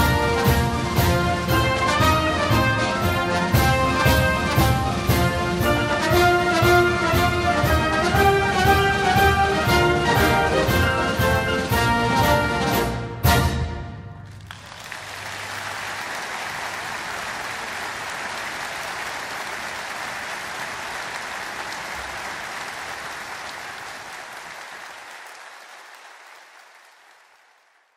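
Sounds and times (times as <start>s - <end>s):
large audience applauding: 14.2s - 27.9s.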